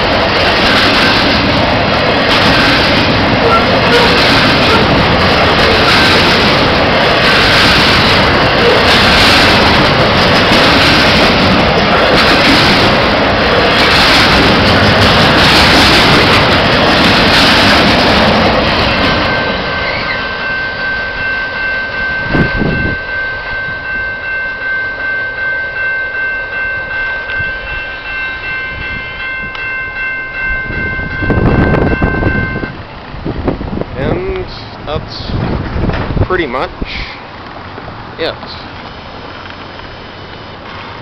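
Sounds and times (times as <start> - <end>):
freight train rumbling over rails: 0.0 - 41.0
level crossing bell ringing: 19.2 - 32.7.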